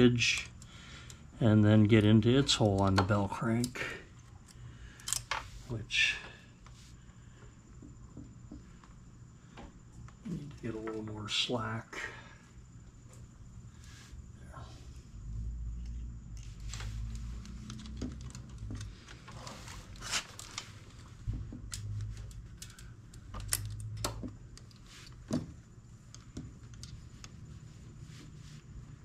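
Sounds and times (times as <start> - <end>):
small metallic clicks and rattles: 2.4 - 5.4, 15.8 - 25.2
dull low rumbling from handling: 12.6 - 29.0.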